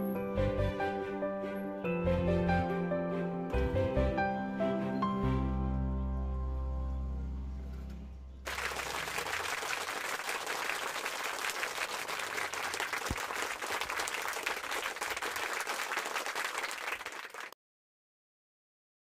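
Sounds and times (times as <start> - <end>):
music: 0.0 - 8.5
crowd applause: 8.5 - 17.6.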